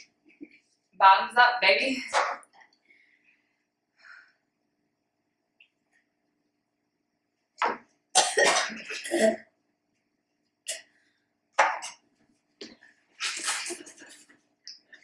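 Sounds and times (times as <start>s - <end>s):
girl coughing and gagging: 8.2s - 9.5s.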